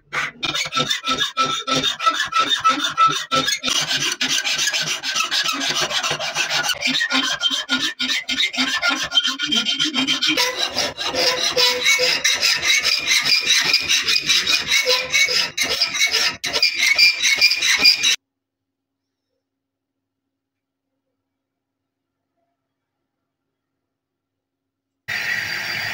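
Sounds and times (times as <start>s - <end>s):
file rasping by hand: 0.0s - 18.2s.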